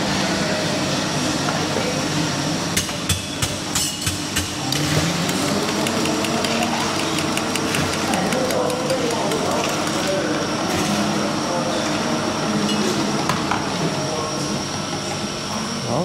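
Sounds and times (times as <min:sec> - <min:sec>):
steady background noise: 0:00.0 - 0:16.0
sharp knocks of hard objects: 0:02.8 - 0:04.6.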